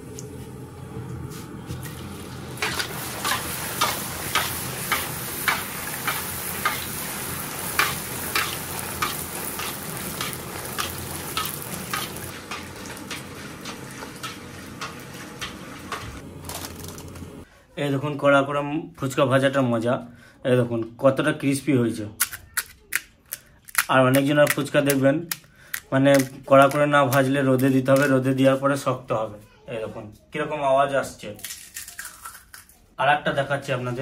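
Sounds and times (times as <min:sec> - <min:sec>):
dough sizzling in hot oil: 0:01.7 - 0:16.2.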